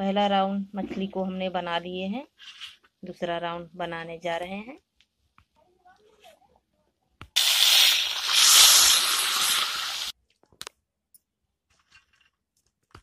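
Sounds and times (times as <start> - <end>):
fish sizzling in hot oil: 7.4 - 10.2.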